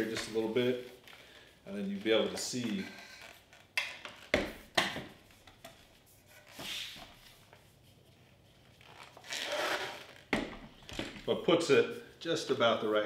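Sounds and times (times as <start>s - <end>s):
tripod sections rubbing: 0.0s - 10.9s.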